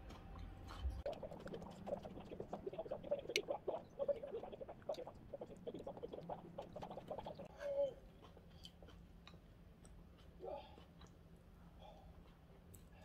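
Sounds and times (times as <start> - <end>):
mouth clicks: 0.2 - 7.5
crunchy chewing: 8.1 - 11.2.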